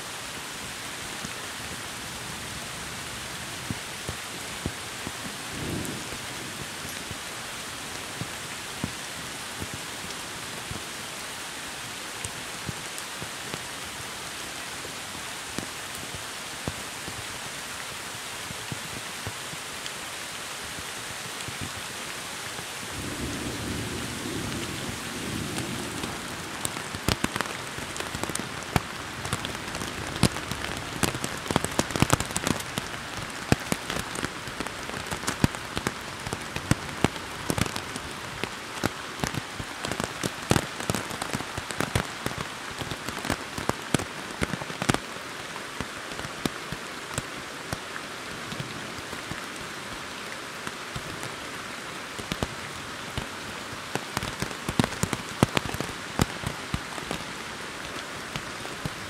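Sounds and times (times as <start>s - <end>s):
rain on foliage and rock: 0.0s - 59.0s
sharp raindrop hits: 22.8s - 45.1s, 53.9s - 59.0s
low thunder rumble: 22.9s - 27.0s.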